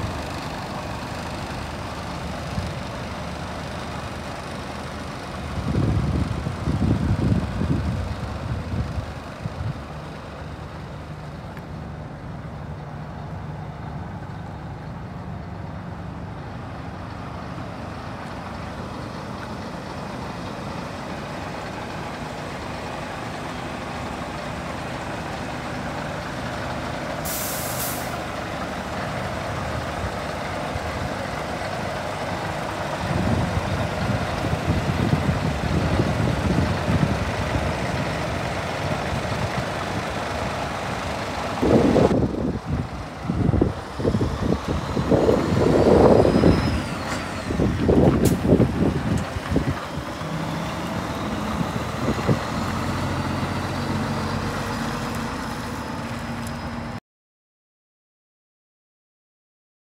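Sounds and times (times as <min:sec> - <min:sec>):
diesel truck idling: 0:00.0 - 0:57.0
compressed air hiss: 0:27.2 - 0:28.2.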